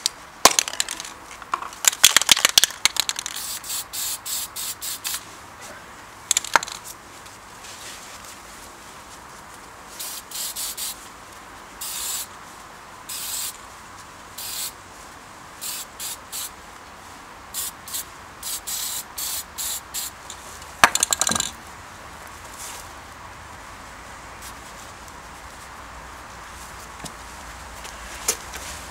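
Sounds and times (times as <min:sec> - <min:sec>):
sharp rattling clatter: 0:00.4 - 0:01.2, 0:01.8 - 0:03.6, 0:06.3 - 0:06.9, 0:20.3 - 0:21.6
aerosol spray can hissing: 0:03.2 - 0:05.2, 0:10.0 - 0:11.0, 0:11.8 - 0:12.3, 0:13.1 - 0:13.6, 0:14.4 - 0:14.8, 0:15.6 - 0:16.5, 0:17.6 - 0:20.2.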